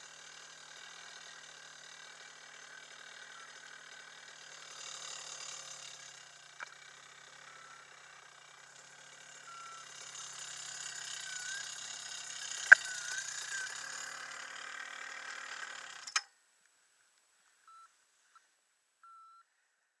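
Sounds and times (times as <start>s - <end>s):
small engine idling with rattle: 0.0s - 16.4s
sharp click: 12.7s - 13.0s.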